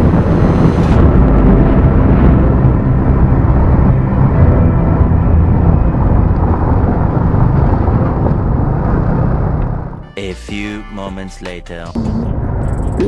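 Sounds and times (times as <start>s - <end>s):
wind rush on microphone: 0.0s - 10.0s.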